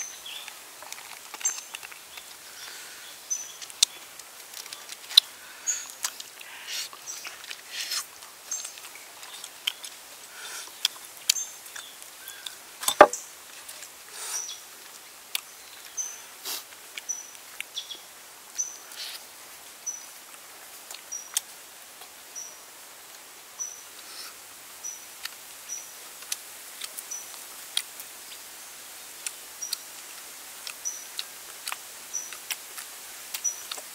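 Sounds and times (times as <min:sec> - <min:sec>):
knock: 0:12.9 - 0:13.2.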